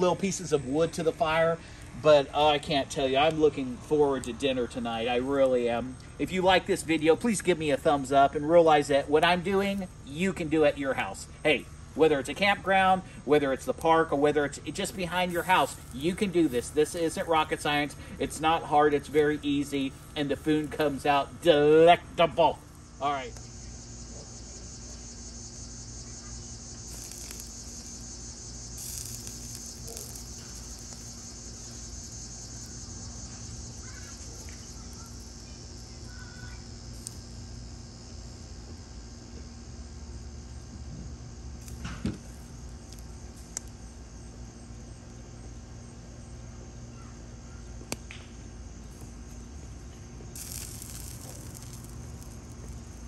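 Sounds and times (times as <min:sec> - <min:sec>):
wood fire burning: 0:00.0 - 0:46.3, 0:47.9 - 0:53.0
insects chirping: 0:00.0 - 0:53.0
low steady hum: 0:00.0 - 0:53.0
fire popping: 0:06.0 - 0:38.4, 0:41.6 - 0:44.3, 0:48.9 - 0:53.0.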